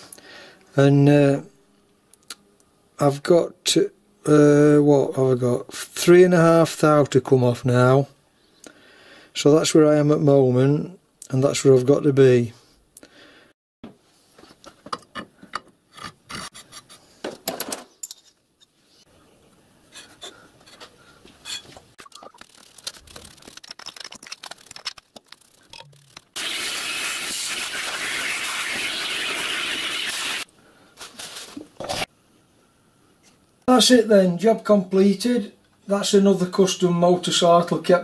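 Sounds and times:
metal tools clicking and scraping: 17.6 - 18.7.

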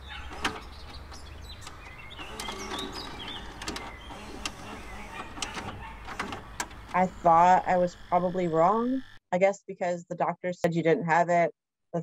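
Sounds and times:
sharp clicks: 0.3 - 8.5
steady low hum: 1.7 - 9.2.

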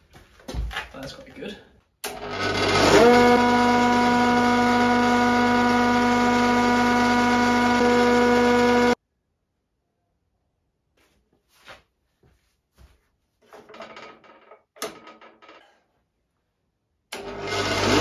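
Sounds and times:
planer motor whine: 2.1 - 9.0, 17.2 - 18.0.

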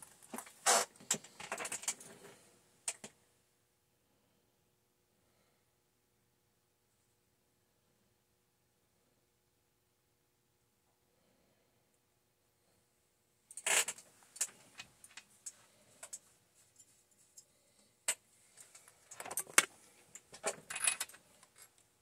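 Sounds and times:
metal parts and tool clinking: 18.1 - 21.7.

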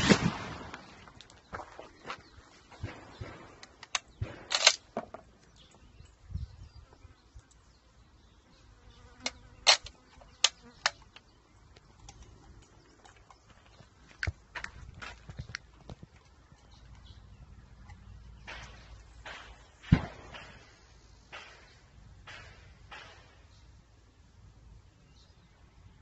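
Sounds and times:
rifle bolt clicking: 3.7 - 4.8.

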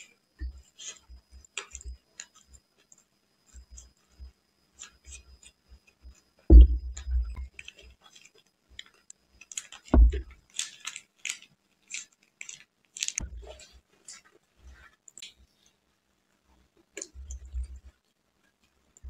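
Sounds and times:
soft chewing: 0.0 - 15.8
heavy low thumps: 6.5 - 7.4, 10.0 - 10.2.

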